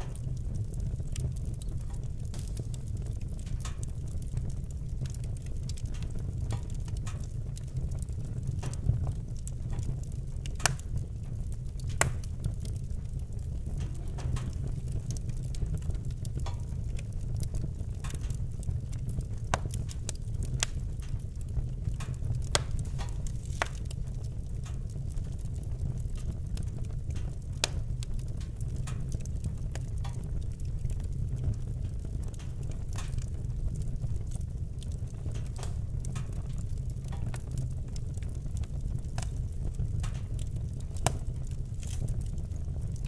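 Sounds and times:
low fire rumble: 0.0s - 43.0s
wood fire crackling and popping: 0.0s - 43.0s.

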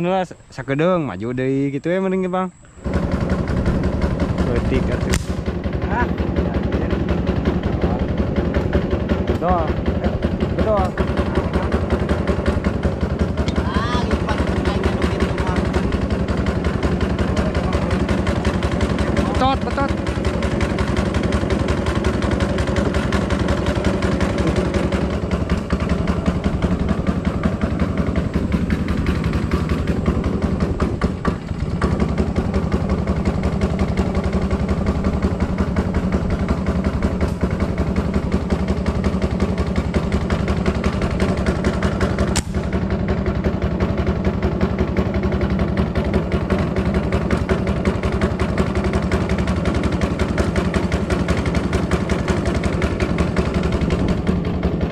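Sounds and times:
boat engine running: 0.0s - 54.9s
sharp click: 5.1s - 5.4s, 42.3s - 42.6s.

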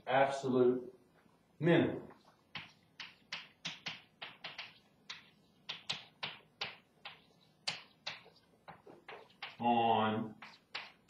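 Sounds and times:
chalk tapping on a chalkboard: 2.2s - 9.6s, 10.3s - 11.0s.

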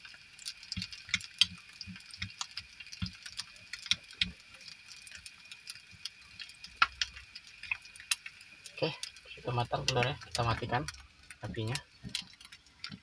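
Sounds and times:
egg frying in a pan: 0.0s - 13.0s.

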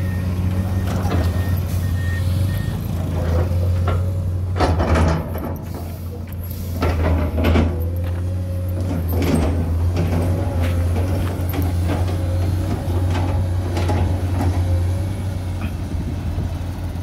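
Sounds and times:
reversing alarm beeps: 0.0s - 2.9s
excavator diesel engine droning: 0.0s - 17.0s
heavy clunks and knocks: 3.1s - 5.9s, 6.8s - 8.1s.

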